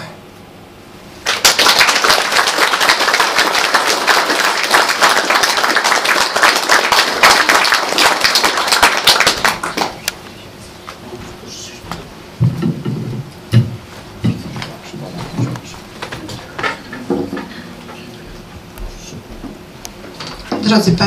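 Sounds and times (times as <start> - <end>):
audience applauding: 1.2 - 10.1.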